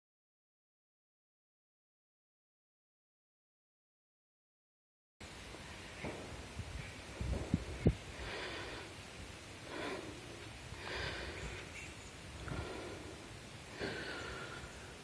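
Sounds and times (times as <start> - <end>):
person breathing heavily: 7.8 - 15.0.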